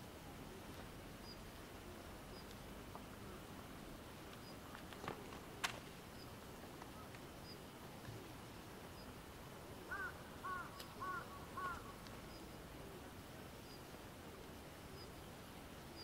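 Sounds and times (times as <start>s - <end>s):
outdoor background noise: 0.0s - 16.0s
crow cawing: 9.9s - 12.0s.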